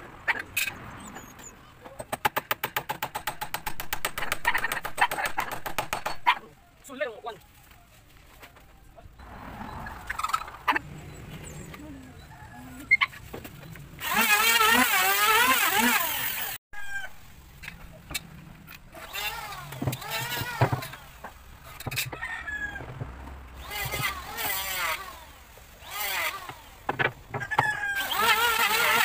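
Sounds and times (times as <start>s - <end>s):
sharp knocks: 2.0s - 6.3s
rooster crowing: 12.0s - 13.1s, 22.0s - 23.0s, 27.4s - 28.3s.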